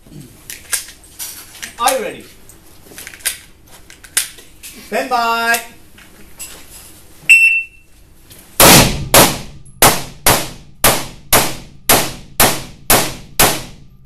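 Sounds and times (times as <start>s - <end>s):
shot timer beep: 7.3s - 7.8s
rifle shots: 8.6s - 13.9s.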